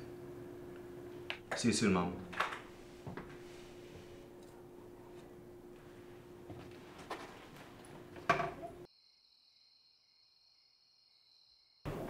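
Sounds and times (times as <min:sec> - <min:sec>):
faint crickets chirring: 0:08.8 - 0:12.0.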